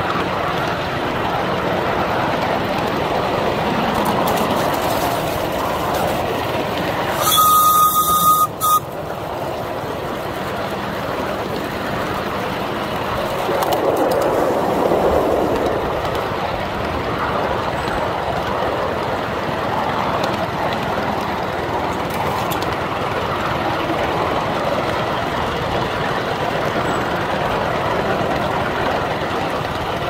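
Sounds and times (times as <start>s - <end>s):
rail and wheel noise: 0.0s - 30.0s
steam locomotive whistle: 7.0s - 9.0s.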